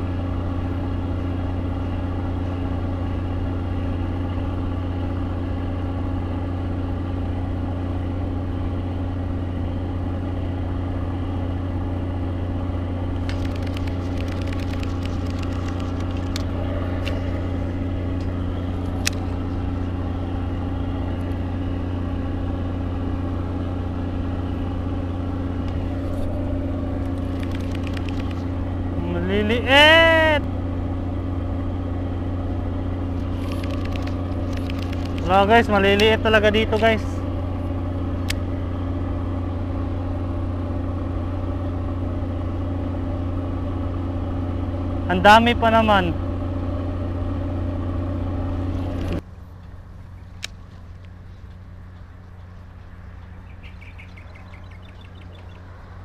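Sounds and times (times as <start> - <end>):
motor running: 0.0 - 56.0
small clicks: 13.2 - 17.4, 18.2 - 19.4, 27.0 - 28.6, 33.2 - 36.2.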